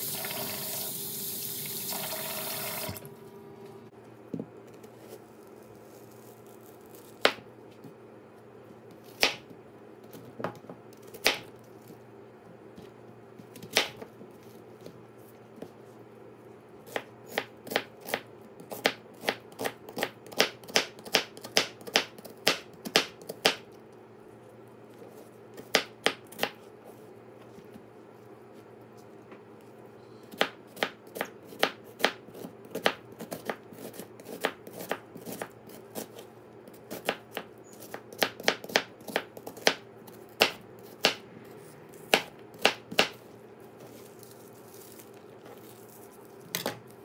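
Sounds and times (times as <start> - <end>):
tap water running into tub: 0.0 - 3.1
knife chopping on cutting board: 30.4 - 36.2, 36.8 - 41.2, 42.0 - 43.2.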